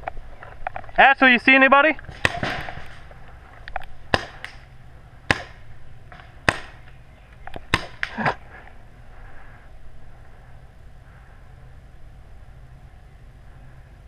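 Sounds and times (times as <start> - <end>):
paintball gun shots: 2.0 - 3.1, 3.8 - 8.3.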